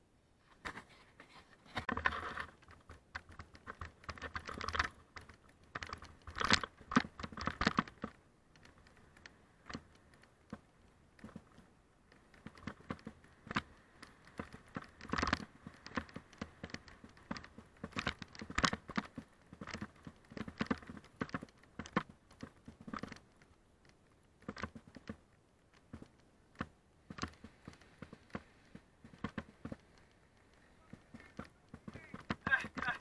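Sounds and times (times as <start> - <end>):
bike knocks and rattles: 0.5 - 23.5, 24.4 - 33.0
tyres crunching on gravel: 27.4 - 33.0.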